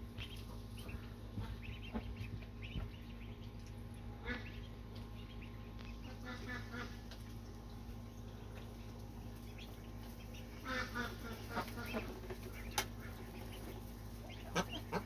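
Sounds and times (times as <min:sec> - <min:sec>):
low steady hum: 0:00.0 - 0:15.0
ducks quacking: 0:00.2 - 0:03.4, 0:04.0 - 0:07.2, 0:09.4 - 0:15.0.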